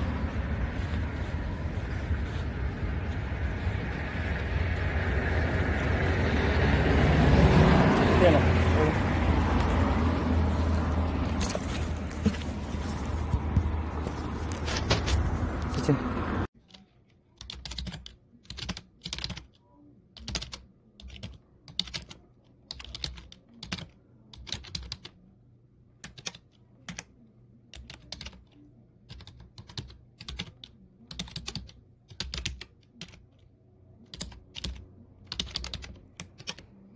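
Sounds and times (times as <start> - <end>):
computer keyboard typing: 17.4 - 19.6, 20.2 - 25.2, 26.0 - 27.1, 27.7 - 36.8.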